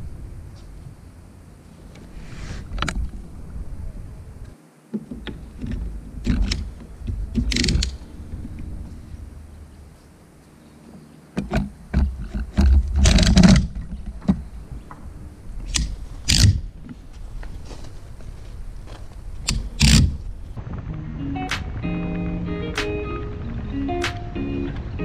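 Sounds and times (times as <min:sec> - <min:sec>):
kayak carrier arm knocks and clicks: 0:11.4 - 0:15.0.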